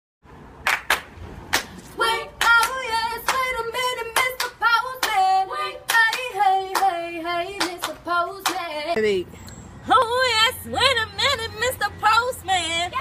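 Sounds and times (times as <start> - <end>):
people clapping a beat: 0.6 - 8.7
woman singing unaccompanied: 2.0 - 9.0, 9.9 - 13.0.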